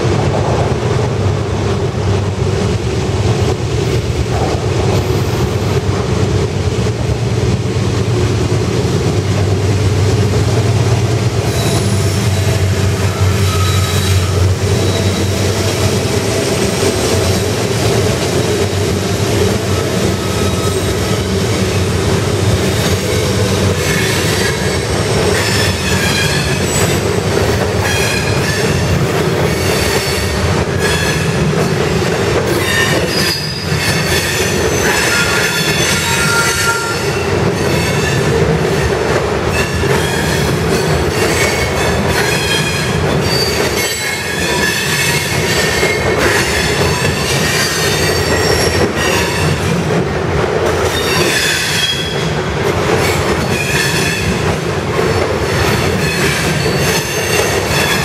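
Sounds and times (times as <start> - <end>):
diesel locomotive engine drone: 0.0 - 58.0
freight cars rumbling on rails: 0.0 - 58.0
train wheels squealing: 11.5 - 15.6, 19.8 - 21.4, 32.5 - 38.2, 39.5 - 49.6, 56.0 - 58.0.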